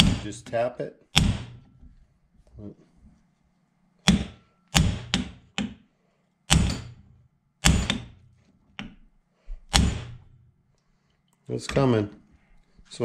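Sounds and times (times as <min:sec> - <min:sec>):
hammer striking metal: 0:00.0 - 0:00.5, 0:01.2 - 0:01.7, 0:04.1 - 0:05.8, 0:06.5 - 0:08.2, 0:09.7 - 0:10.3.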